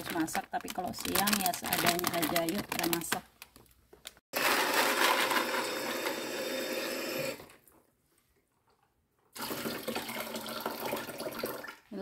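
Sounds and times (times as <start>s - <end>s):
tap water running into tray: 9.4s - 11.8s.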